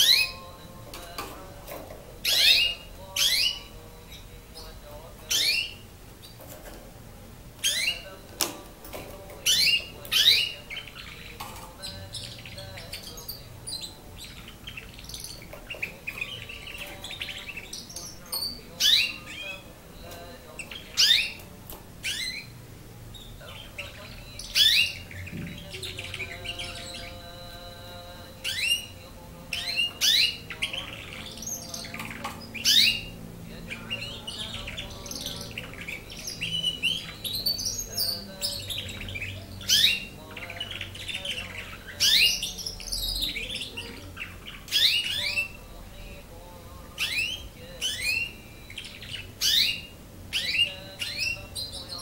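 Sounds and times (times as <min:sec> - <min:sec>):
canary singing: 0:00.0 - 0:52.0.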